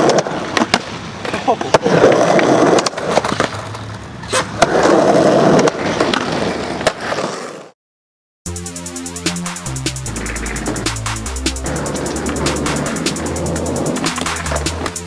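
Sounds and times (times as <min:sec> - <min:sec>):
skateboard clacks: 0:00.0 - 0:07.7, 0:10.2 - 0:15.0
skateboard rolling on concrete: 0:00.0 - 0:07.8, 0:10.2 - 0:11.0, 0:11.6 - 0:15.0.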